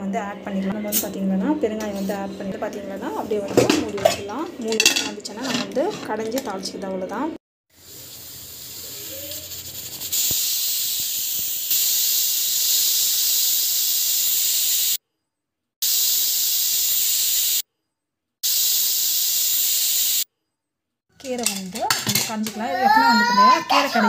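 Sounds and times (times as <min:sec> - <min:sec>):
pressure cooker hissing steam: 0:07.7 - 0:15.0, 0:15.8 - 0:17.6, 0:18.4 - 0:20.3.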